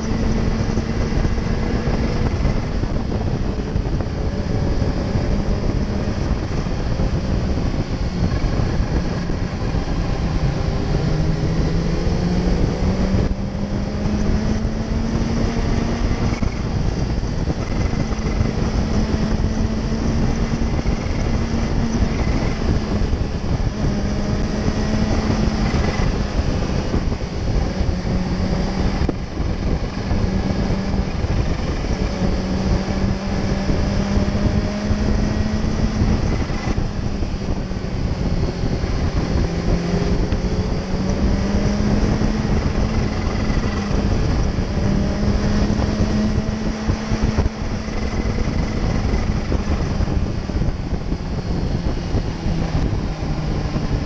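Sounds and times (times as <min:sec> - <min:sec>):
motorcycle engine running: 0:00.0 - 0:54.0
wind and road rush: 0:00.0 - 0:54.0.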